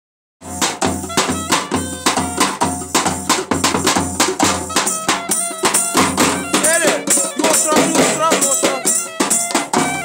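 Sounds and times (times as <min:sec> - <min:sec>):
hand drum beating: 0:00.6 - 0:10.0
clarinet melody: 0:01.0 - 0:02.9, 0:04.6 - 0:10.0.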